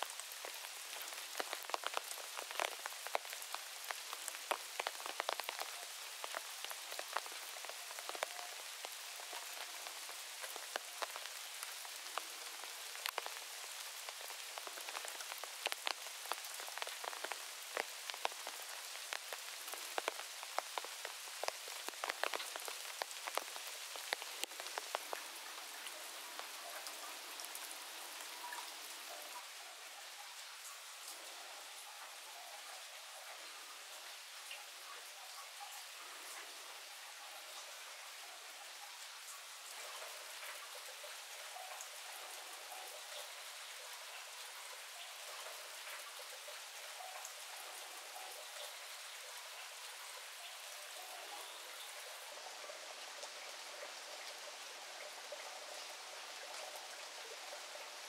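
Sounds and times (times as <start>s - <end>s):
raindrop hits: 0.0s - 29.3s
steady rain: 0.0s - 58.0s.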